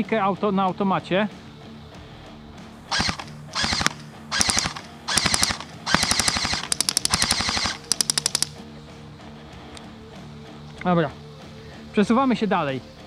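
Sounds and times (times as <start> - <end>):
electric airsoft gun firing bursts: 2.9 - 8.6.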